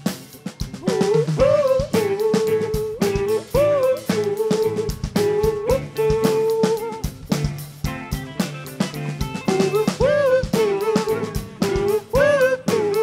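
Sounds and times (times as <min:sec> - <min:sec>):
drum kit beat: 0:00.0 - 0:13.0
live rock band playing: 0:00.0 - 0:13.0.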